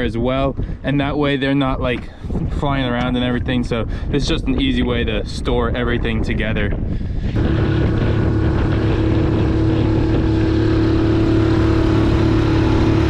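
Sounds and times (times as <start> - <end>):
wind: 0.0 - 13.0
outboard motor running: 7.1 - 13.0
water rushing: 7.4 - 13.0.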